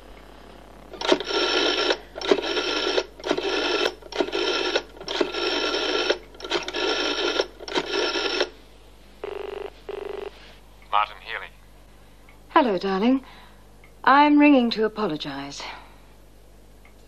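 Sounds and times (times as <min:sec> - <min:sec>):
rotary phone dial whirring: 0:00.9 - 0:08.6.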